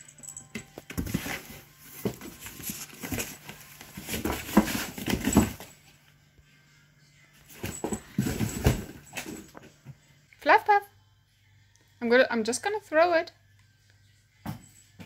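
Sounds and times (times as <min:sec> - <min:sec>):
cat scuffling in cardboard box: 0:00.9 - 0:05.7, 0:07.5 - 0:09.6.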